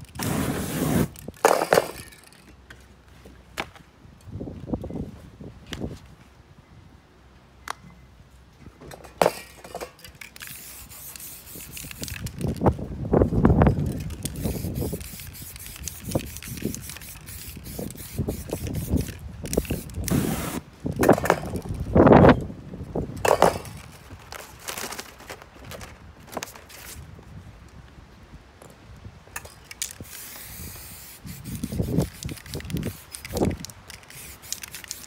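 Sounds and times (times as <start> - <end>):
spray paint can hissing: 0.1 - 1.2, 10.4 - 12.5, 13.9 - 20.6, 29.8 - 35.0
paper masks rustling: 23.8 - 27.0.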